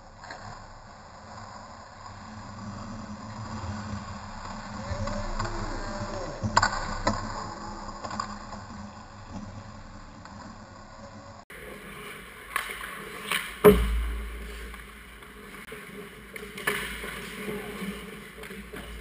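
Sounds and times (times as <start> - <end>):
skates scraping on ice: 0.0 - 19.0
hockey sticks clicking: 11.9 - 19.0.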